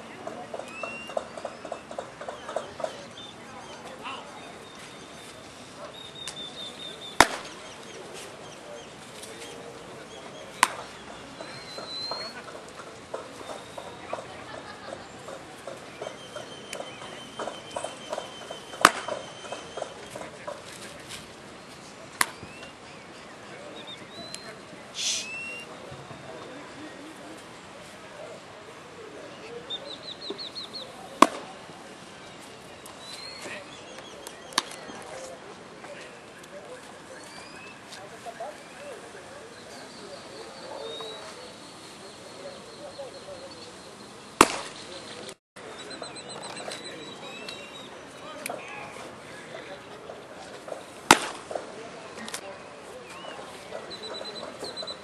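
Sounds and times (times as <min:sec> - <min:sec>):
bird chirping: 0:00.0 - 0:20.7, 0:29.3 - 0:31.2, 0:38.4 - 0:48.3, 0:53.0 - 0:55.0
background noise: 0:00.0 - 0:55.0
baseball bat crack: 0:05.8 - 0:08.2, 0:10.5 - 0:14.2, 0:15.6 - 0:20.8, 0:22.1 - 0:22.8, 0:31.1 - 0:31.7, 0:32.9 - 0:35.3, 0:44.4 - 0:45.4, 0:50.5 - 0:52.4
baseball bat cracks: 0:07.2 - 0:07.7, 0:10.6 - 0:10.9, 0:18.1 - 0:20.2, 0:22.2 - 0:22.6, 0:31.2 - 0:31.6, 0:34.2 - 0:34.9, 0:44.4 - 0:44.8, 0:51.0 - 0:51.6.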